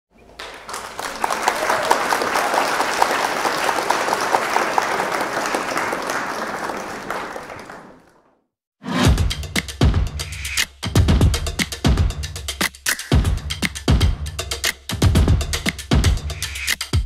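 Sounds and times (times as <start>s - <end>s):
crowd applauding: 0.2s - 8.4s.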